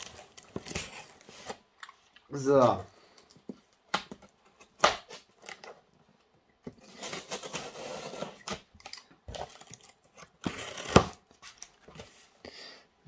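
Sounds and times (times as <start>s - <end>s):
cardboard rustling: 0.0s - 1.7s, 6.6s - 8.7s
box cutter slitting tape: 10.4s - 11.2s.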